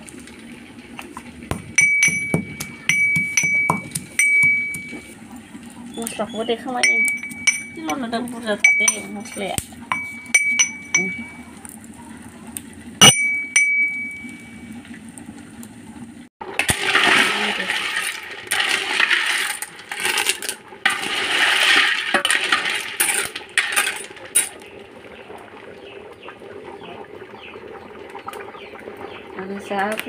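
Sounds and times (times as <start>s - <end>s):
metal pot clinking: 1.5s - 5.1s, 6.8s - 11.5s, 13.0s - 14.6s
food hissing and sizzling: 15.4s - 24.5s.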